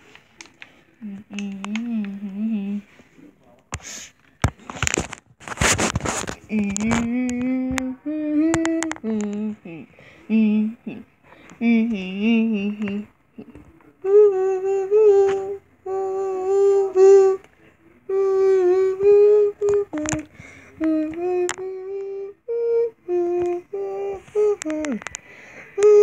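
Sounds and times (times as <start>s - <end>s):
child humming: 1.0s - 2.9s, 6.5s - 17.4s, 18.1s - 25.1s, 25.8s - 26.0s.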